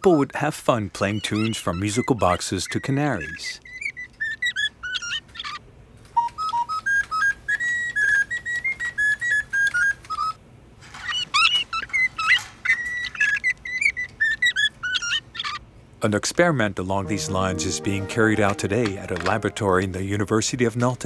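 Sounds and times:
canary singing: 1.0 - 5.6, 6.4 - 10.4, 11.0 - 15.6
flute-like tune: 17.0 - 20.2.

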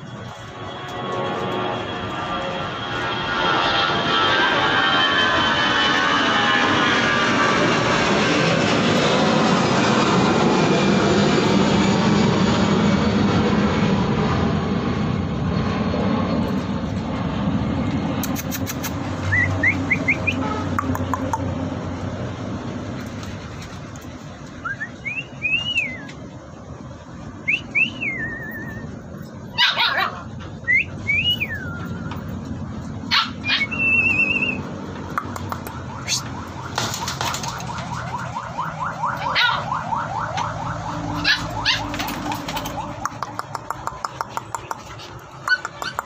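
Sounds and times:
dogs whining: 28.2 - 32.3, 32.9 - 34.6, 41.0 - 46.0
dog yelps and barks: 29.5 - 30.4, 33.1 - 33.9, 39.0 - 40.0, 41.1 - 42.8, 45.4 - 46.0.

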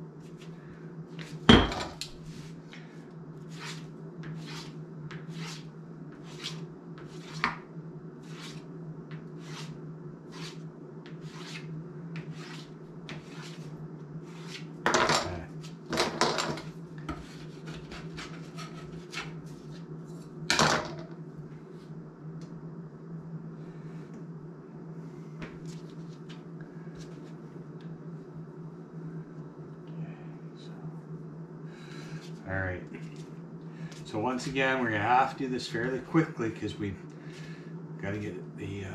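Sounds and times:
steady low hum: 0.0 - 38.9.

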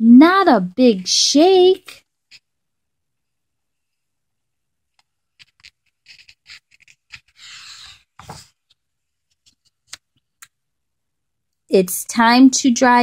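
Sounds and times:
book pages turning: 5.0 - 10.5.

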